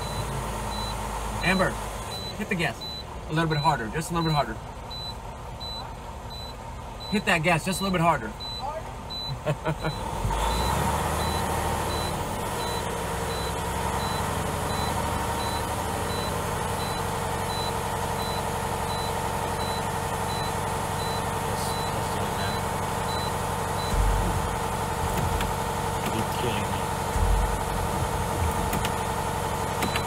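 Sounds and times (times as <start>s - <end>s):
dashboard warning chime beeping: 0.0s - 30.0s
truck engine hum: 0.0s - 30.0s
short low rumble: 27.1s - 28.7s.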